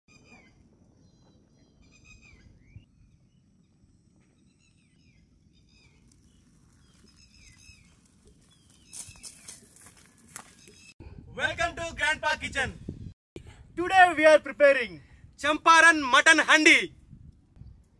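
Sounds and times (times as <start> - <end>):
birds chirping faintly: 0.1 - 11.0.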